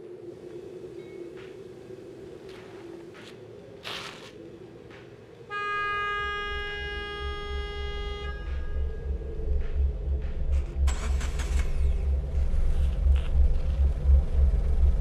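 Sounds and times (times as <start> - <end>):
car horn: 5.5 - 9.1
vehicle engine rumble: 6.1 - 15.0.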